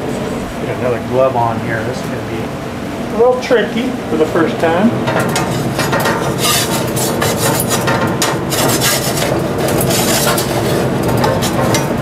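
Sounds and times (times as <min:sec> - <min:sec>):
gloved hands rubbing and scraping: 0:05.5 - 0:11.7.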